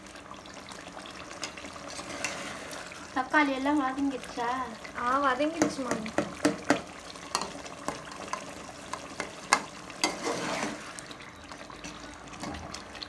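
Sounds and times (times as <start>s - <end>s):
food sizzling: 0.0s - 13.0s
metal spoon scraping a pot: 1.4s - 2.6s, 9.2s - 10.9s.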